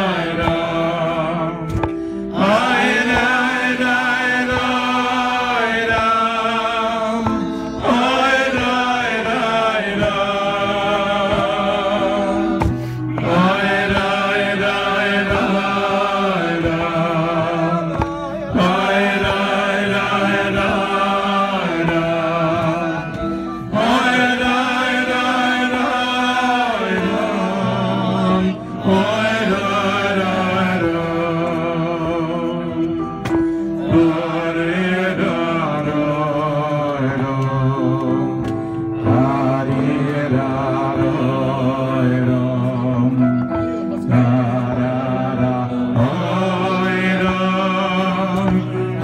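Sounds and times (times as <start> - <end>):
man singing slow melody: 0.0 - 49.0
short breaths: 12.7 - 13.1, 33.4 - 33.8.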